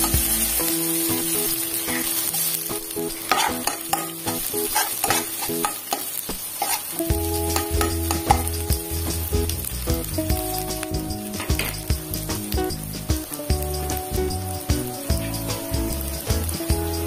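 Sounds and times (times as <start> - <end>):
food sizzling in oil: 0.0 - 17.0
metal spoon scraping wok: 3.2 - 8.5.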